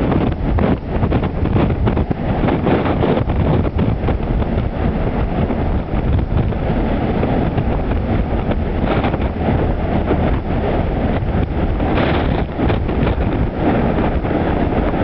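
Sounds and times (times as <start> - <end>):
rough sea rushing: 0.0 - 15.0
wind buffeting microphone: 0.0 - 15.0.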